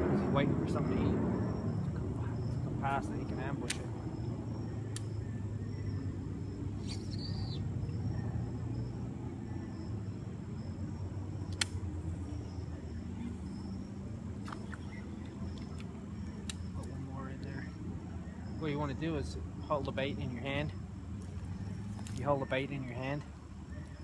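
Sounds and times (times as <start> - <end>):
distant traffic rumble: 0.0 - 24.0
sharp click: 3.6 - 3.9, 11.5 - 11.8.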